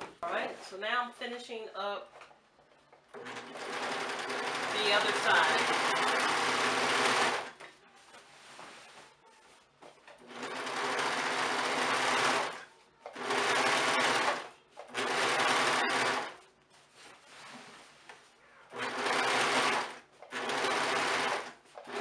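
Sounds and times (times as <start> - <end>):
overlock sewing machine running: 3.2 - 7.5, 10.2 - 12.6, 13.2 - 16.4, 18.7 - 22.0.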